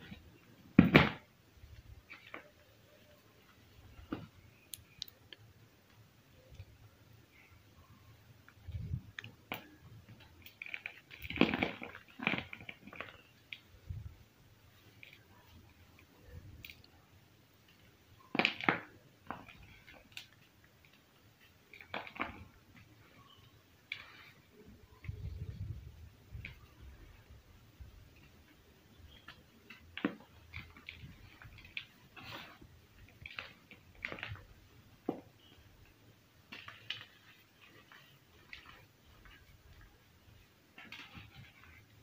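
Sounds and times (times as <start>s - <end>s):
chalk crumbs ticking and scraping: 1.6s - 42.0s.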